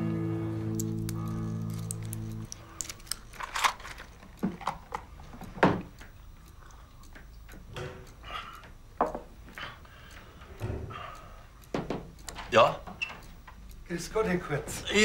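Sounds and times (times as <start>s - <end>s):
blister pack clicks and crackles: 0.7s - 5.1s.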